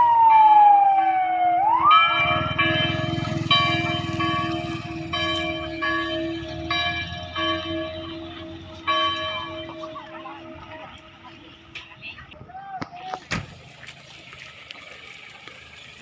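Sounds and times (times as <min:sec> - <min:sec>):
church bell tolling: 0:01.9 - 0:11.8
vehicle engine: 0:02.1 - 0:12.4, 0:13.2 - 0:16.0.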